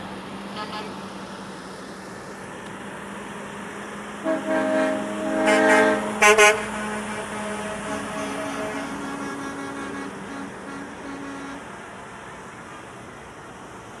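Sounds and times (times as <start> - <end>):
diesel engines running: 0.0 - 14.0
truck air horn blasts: 0.5 - 1.0, 4.2 - 11.8.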